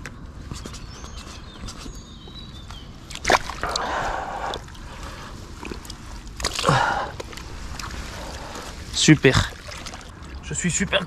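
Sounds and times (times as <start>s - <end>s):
fish thrashing in water: 3.0s - 10.5s.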